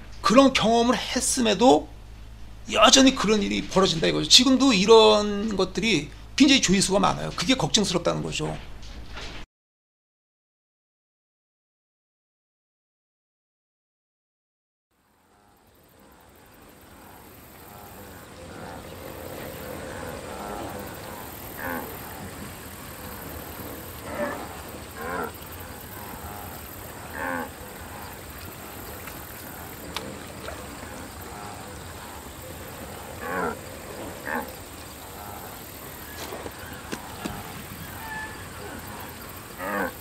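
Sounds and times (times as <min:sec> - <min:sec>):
outdoor ambience: 0:00.0 - 0:09.5, 0:15.0 - 0:40.0
cartoon wildebeest grunting: 0:35.2 - 0:40.0.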